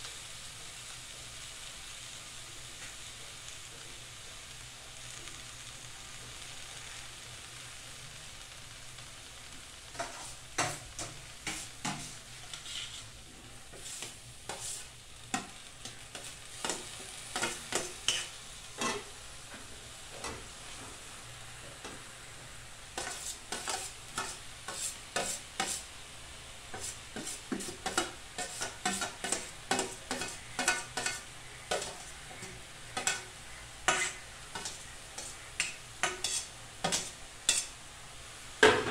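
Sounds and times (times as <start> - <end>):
food sizzling in a pan: 0.0 - 38.9
metal spoon scraping a pan: 9.9 - 19.2, 22.9 - 25.9, 26.7 - 37.8.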